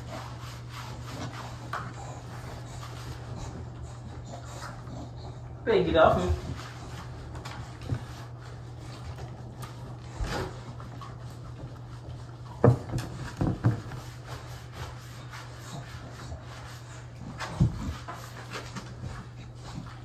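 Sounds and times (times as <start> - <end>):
soapy fur being rubbed: 0.0 - 3.8
steady low hum: 0.0 - 20.0
dog moving in bathtub: 5.7 - 20.0
thumps against tub: 12.6 - 14.0.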